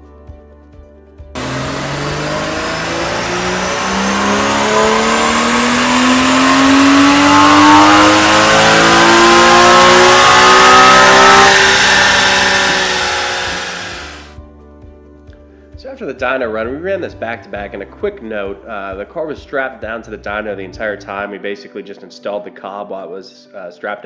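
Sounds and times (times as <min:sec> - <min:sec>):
car engine revving at full throttle: 0:01.4 - 0:14.4.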